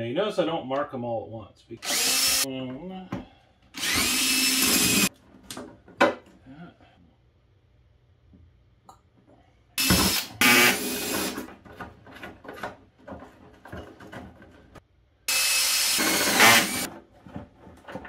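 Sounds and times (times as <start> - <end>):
cordless drill drilling into plastic: 1.8 - 2.5, 3.8 - 5.1, 9.8 - 11.4, 15.3 - 16.9.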